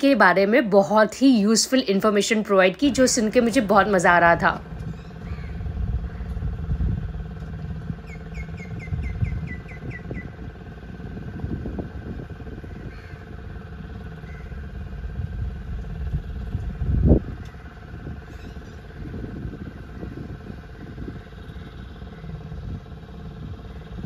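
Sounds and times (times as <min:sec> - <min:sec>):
boat engine running: 0:00.0 - 0:24.0
bird call: 0:08.0 - 0:10.4, 0:18.2 - 0:18.8.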